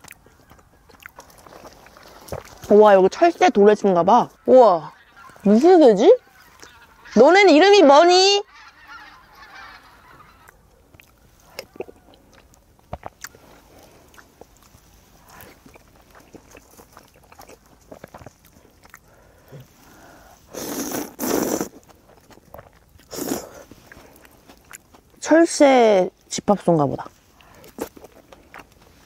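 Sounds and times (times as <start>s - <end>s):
chewing clicks and smacks: 0.0s - 2.7s, 10.4s - 19.5s, 21.6s - 25.2s, 27.4s - 29.0s
slurping noodles: 19.6s - 24.3s.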